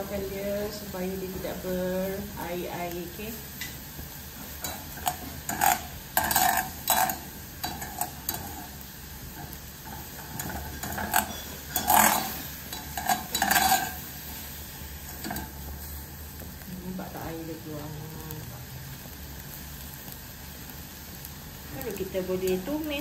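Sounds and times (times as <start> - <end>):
wire skimmer scraping a pot: 4.6 - 8.7, 9.4 - 14.1.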